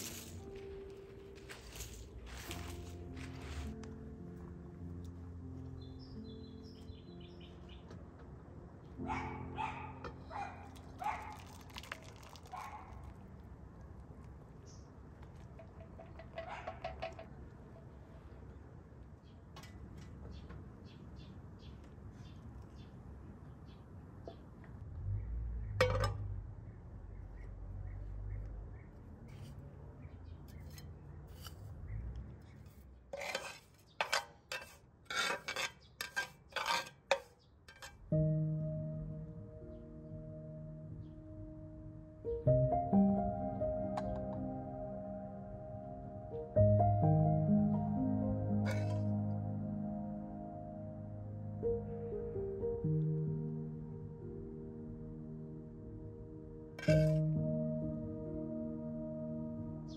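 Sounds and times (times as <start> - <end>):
soft background music: 0.0 - 13.0, 38.0 - 59.9
metal spoon scraping metal pan: 30.5 - 31.7, 32.6 - 38.0, 48.7 - 49.0, 56.8 - 57.2.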